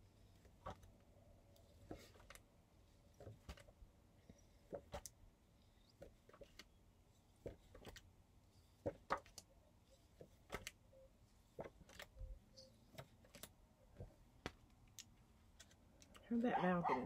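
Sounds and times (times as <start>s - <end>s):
paper flashcards rustling: 7.4s - 9.4s, 10.1s - 10.8s, 12.8s - 14.9s.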